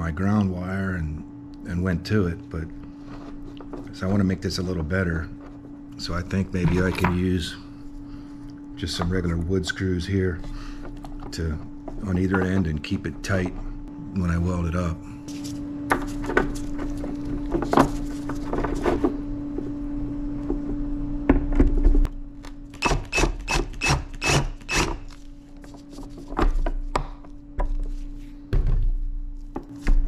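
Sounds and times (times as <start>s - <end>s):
cordless drill driving screws: 22.8s - 25.0s.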